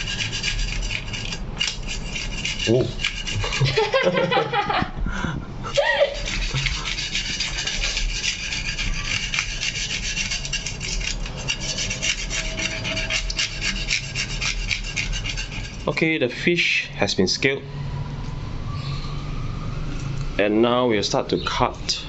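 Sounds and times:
knife scraping fish scales: 0.0 - 3.8, 6.1 - 16.0.

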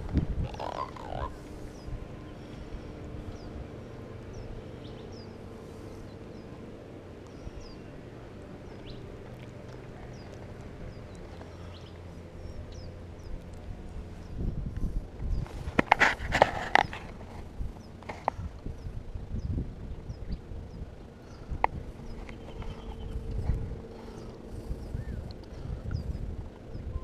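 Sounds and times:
wavering creak: 0.0 - 1.8.

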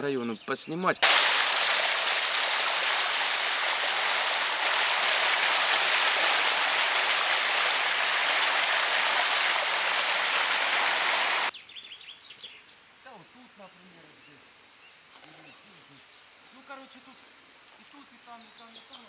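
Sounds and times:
water falling down spillway: 1.0 - 11.5.

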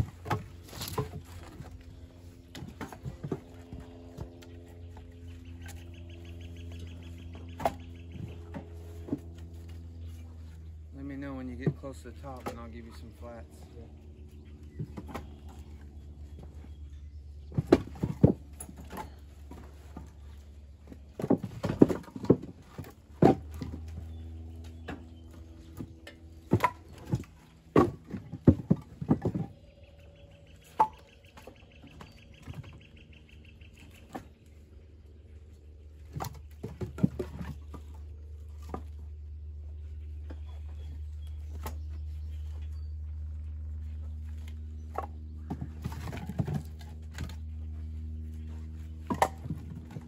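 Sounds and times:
firewood pieces knocking together: 0.0 - 5.8, 17.5 - 32.8, 36.0 - 39.2, 44.3 - 47.6, 48.5 - 50.0
steady low hum: 0.0 - 50.0.

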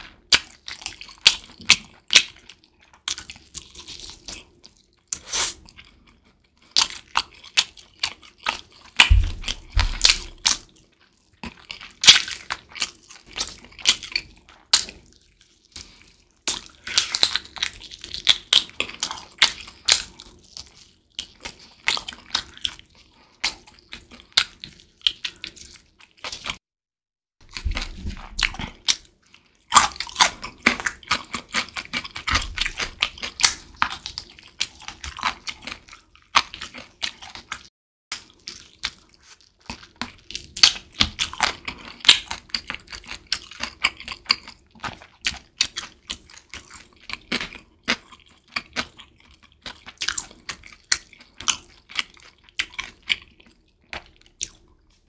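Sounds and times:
wet chewing and crunching: 0.0 - 26.6, 27.4 - 55.0
low thuds: 9.1 - 10.4.

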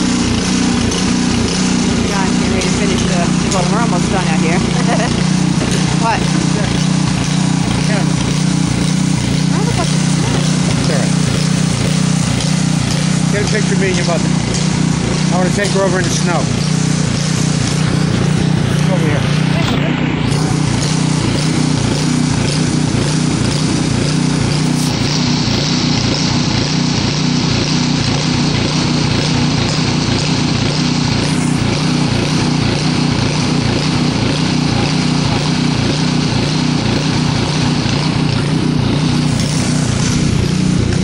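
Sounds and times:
small engine humming: 0.0 - 41.0.

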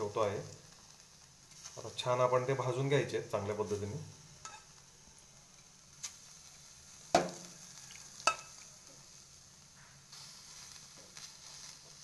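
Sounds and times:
faint sizzle: 0.0 - 12.0
metal tongs clinking on grill: 4.4 - 4.8, 8.2 - 8.7.

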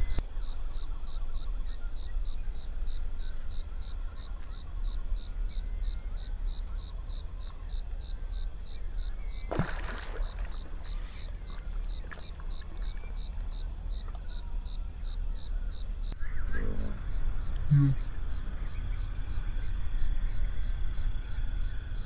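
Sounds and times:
insects chirping in short pulses: 0.0 - 22.0
frog splashing in water: 9.4 - 14.1
low steady rumble: 10.5 - 22.0.

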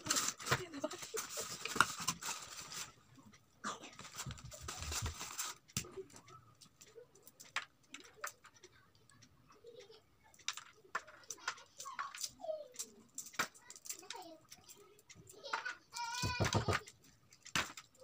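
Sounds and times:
crinkly wrapper rustling: 0.0 - 3.0, 3.9 - 5.8
small clicks and taps: 3.3 - 18.0.

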